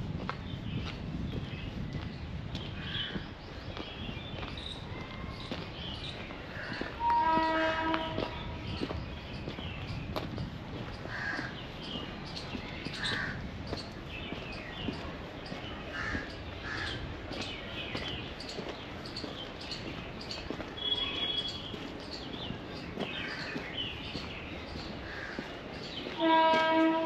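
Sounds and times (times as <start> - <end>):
small birds chirping: 0.4 - 7.0, 8.2 - 26.2
crows cawing: 11.1 - 11.6, 13.0 - 13.4, 15.9 - 17.0, 25.0 - 25.6.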